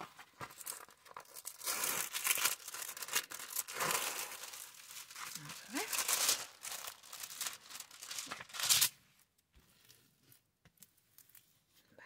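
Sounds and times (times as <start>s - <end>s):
plastic wrap crinkling: 0.2s - 9.0s.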